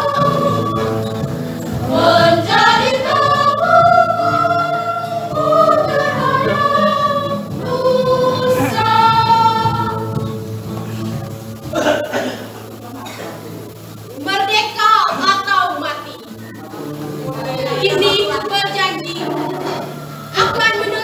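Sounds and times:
women's choir singing: 0:00.0 - 0:10.8, 0:17.4 - 0:21.0.

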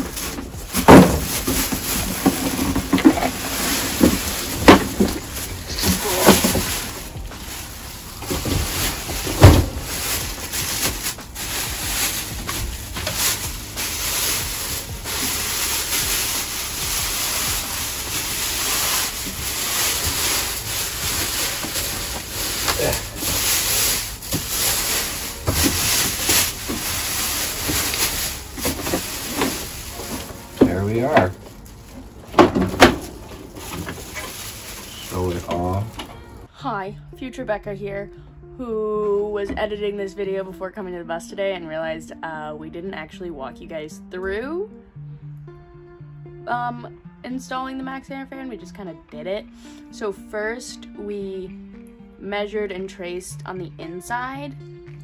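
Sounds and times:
plastic wrapping crinkling: 0:00.0 - 0:36.5
cardboard knocking and scraping: 0:00.1 - 0:07.5, 0:08.2 - 0:11.2, 0:19.6 - 0:31.5.

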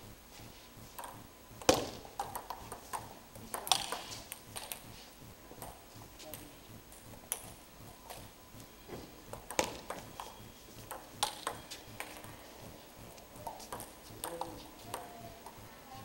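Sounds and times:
table tennis ball clicking: 0:01.0 - 0:04.9, 0:05.6 - 0:08.3, 0:09.3 - 0:12.3, 0:13.3 - 0:15.6.

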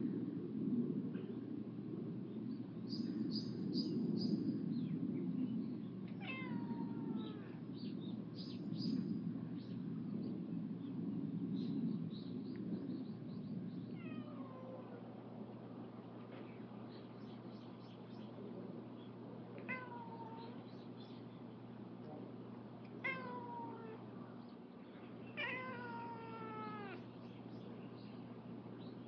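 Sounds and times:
steady low rumble: 0:00.0 - 0:29.0
cat meowing: 0:06.2 - 0:07.6, 0:14.0 - 0:15.0, 0:19.6 - 0:20.6, 0:23.0 - 0:24.0, 0:25.4 - 0:27.0.

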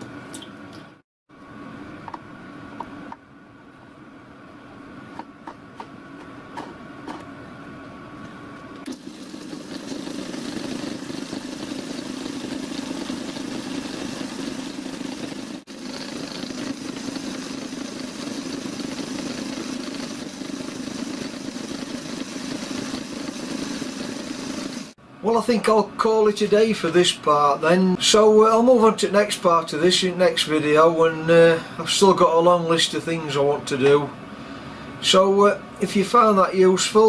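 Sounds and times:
small lathe running: 0:08.9 - 0:25.0.

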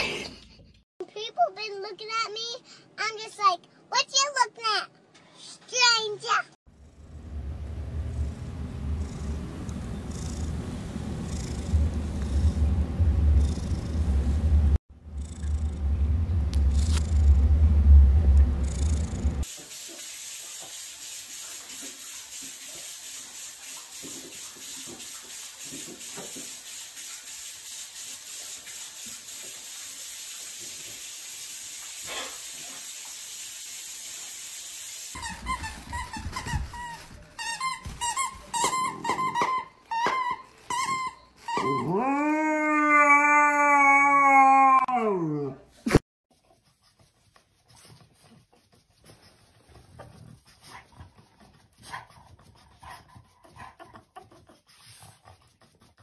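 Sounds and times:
dog whining: 0:38.6 - 0:45.7
dog howling: 0:41.6 - 0:45.6.

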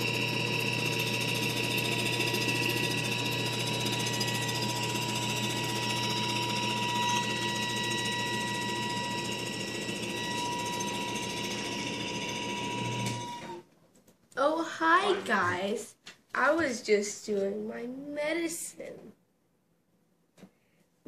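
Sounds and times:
machine humming with thin tones: 0:00.0 - 0:13.6.

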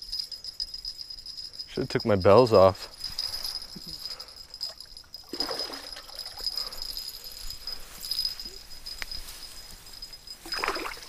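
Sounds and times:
high insect trill: 0:00.0 - 0:11.0
grass rustling: 0:02.7 - 0:11.0
fish splashing in water: 0:10.4 - 0:11.0.

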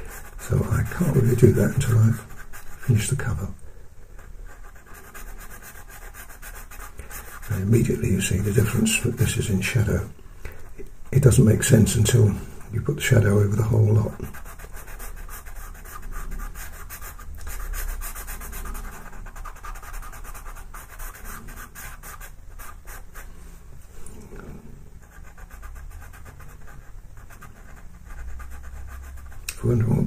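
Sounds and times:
pencil scratching on paper: 0:00.0 - 0:03.4, 0:04.5 - 0:09.5, 0:13.1 - 0:23.3, 0:25.0 - 0:30.0.

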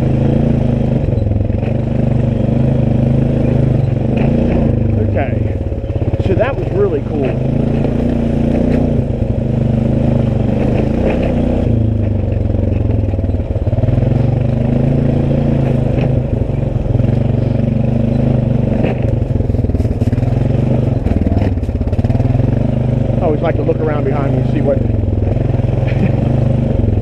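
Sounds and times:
atv engine running: 0:00.0 - 0:27.0
knocks and rattles: 0:10.0 - 0:22.6.

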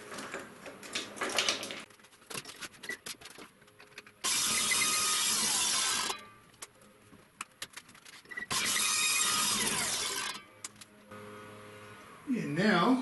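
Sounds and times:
table saw cutting wood: 0:04.3 - 0:06.1, 0:08.5 - 0:10.4.

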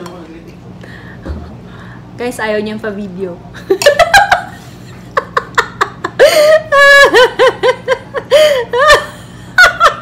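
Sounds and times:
woman laughing: 0:03.6 - 0:10.0.

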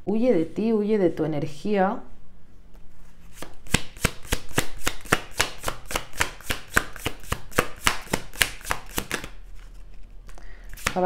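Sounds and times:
cards being shuffled: 0:03.2 - 0:11.0.

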